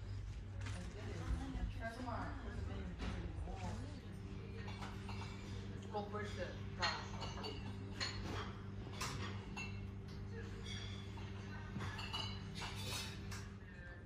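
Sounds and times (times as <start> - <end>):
glassware and dishes clinking: 3.0 - 13.7.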